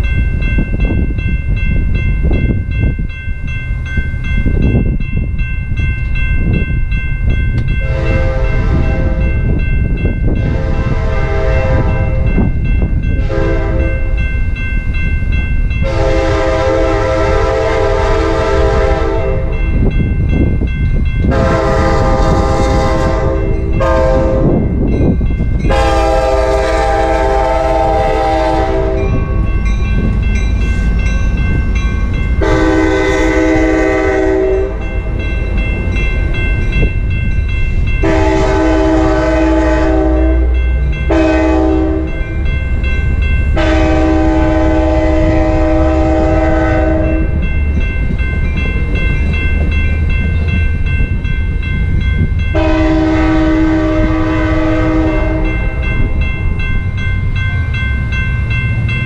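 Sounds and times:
crossing bell ringing: 0:00.0 - 0:59.0
passing train rumbling: 0:00.0 - 0:59.0
train horn blasts: 0:07.8 - 0:09.4, 0:10.4 - 0:12.3, 0:13.1 - 0:14.2, 0:15.8 - 0:19.6, 0:21.3 - 0:24.7, 0:25.7 - 0:29.3, 0:32.4 - 0:34.9, 0:38.0 - 0:42.3, 0:43.5 - 0:47.4, 0:52.5 - 0:56.0.

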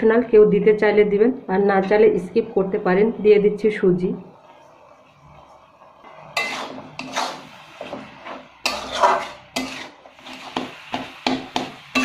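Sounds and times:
metal spatula scraping a pan: 0:06.0 - 0:12.0.

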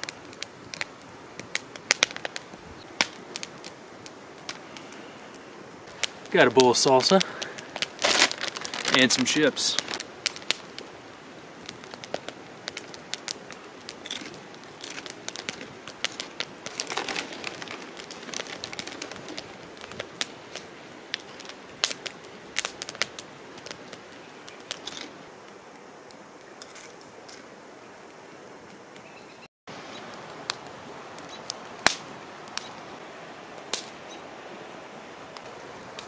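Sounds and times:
chip bag crinkling: 0:06.7 - 0:10.5, 0:14.0 - 0:19.6
chips crunching: 0:07.3 - 0:10.0, 0:16.1 - 0:19.5.

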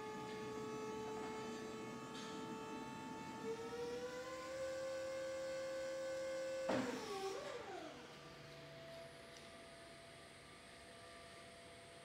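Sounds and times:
hydraulic pump motor whining: 0:00.0 - 0:08.7.

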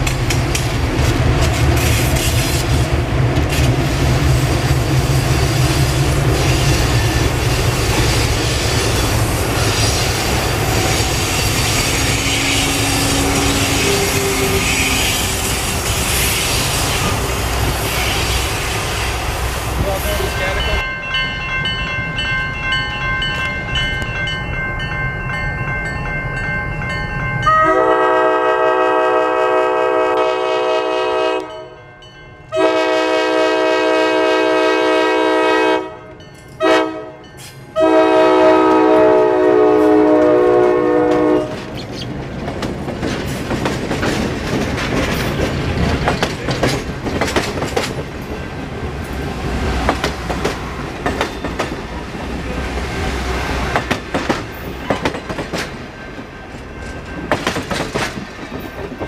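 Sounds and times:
locomotive air horn: 0:11.0 - 0:16.6, 0:27.5 - 0:31.7, 0:32.5 - 0:37.2, 0:37.8 - 0:41.6
train wheels clattering: 0:40.1 - 0:59.0.

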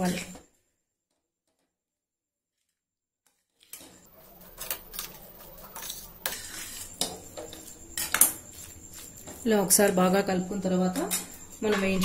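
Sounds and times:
metal spatula scraping a pan: 0:03.4 - 0:10.2.

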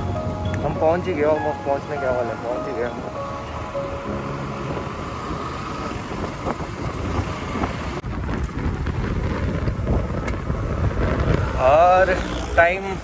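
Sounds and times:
road noise: 0:00.0 - 0:13.0
motorcycle engine: 0:02.3 - 0:13.0
wind on microphone: 0:03.0 - 0:13.0.

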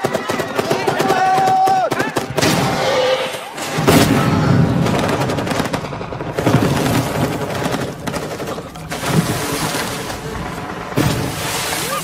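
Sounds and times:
loud blast: 0:02.4 - 0:07.5.

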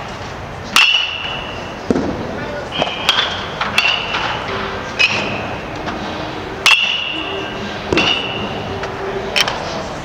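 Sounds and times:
baseball bat pinging ball: 0:02.8 - 0:04.4, 0:06.6 - 0:07.2, 0:07.9 - 0:08.6.

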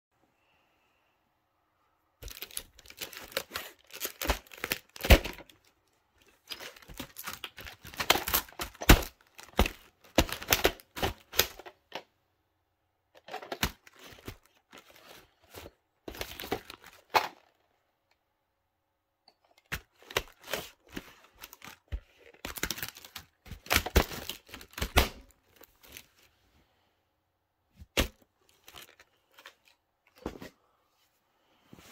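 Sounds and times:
plastic case creaking and clicking: 0:02.2 - 0:12.1, 0:13.2 - 0:15.2, 0:19.4 - 0:25.0.

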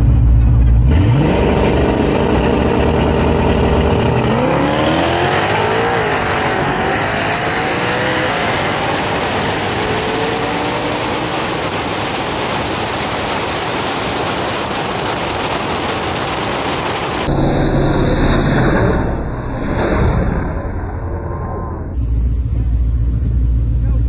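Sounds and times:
car engine at full throttle: 0:00.0 - 0:24.0
race cars rushing past: 0:00.9 - 0:14.3
wind rushing past car: 0:03.5 - 0:18.0.

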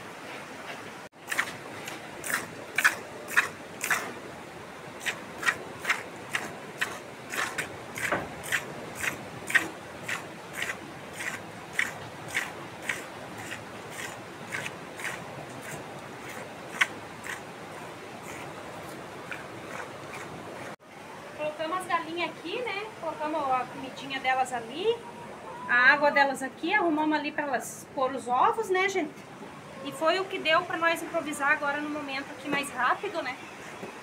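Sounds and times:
milk squirts: 0:01.3 - 0:04.1, 0:05.0 - 0:20.8.

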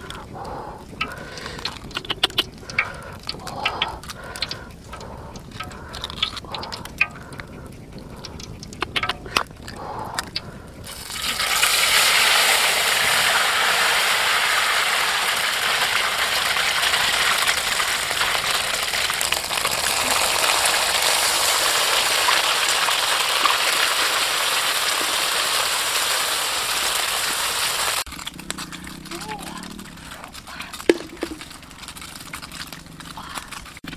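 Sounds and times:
eggshell cracking: 0:00.0 - 0:25.9, 0:28.0 - 0:33.9
egg sizzling in hot wok: 0:10.9 - 0:28.1.

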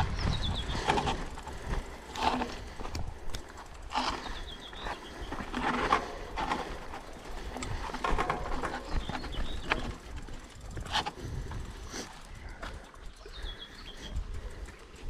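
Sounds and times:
bicycle rattling and knocking: 0:00.0 - 0:15.0
low wind rumble: 0:00.0 - 0:15.0
bird chirps: 0:13.2 - 0:14.2.

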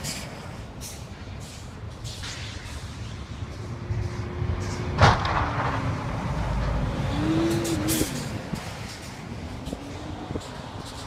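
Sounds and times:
truck passing: 0:00.0 - 0:11.0
sharp bang: 0:05.0 - 0:06.0.

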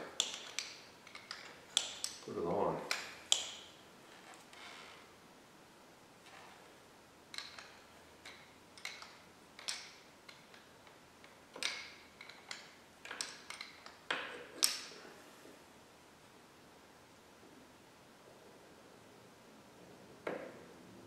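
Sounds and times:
metallic clicks and clinks: 0:11.6 - 0:15.0.

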